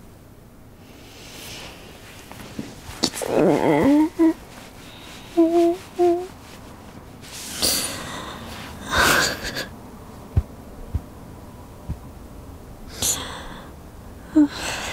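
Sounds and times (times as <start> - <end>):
woman gasping breaths: 7.5 - 9.6, 12.9 - 13.7
soft low thumps: 10.2 - 12.4.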